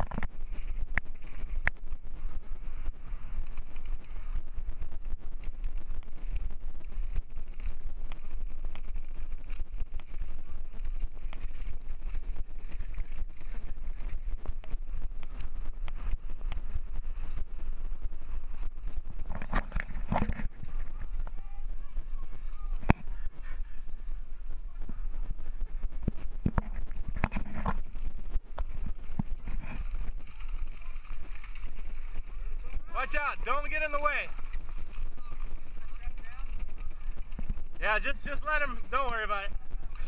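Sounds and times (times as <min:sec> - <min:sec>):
small knocks and crackles: 0:00.0 - 0:01.8, 0:18.9 - 0:21.4, 0:25.8 - 0:32.6, 0:34.3 - 0:37.8
wind buffeting microphone: 0:00.0 - 0:40.0.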